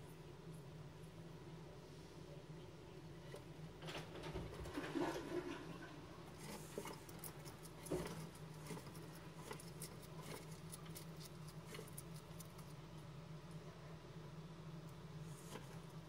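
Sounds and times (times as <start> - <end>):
lizard crunching food: 6.3 - 13.1.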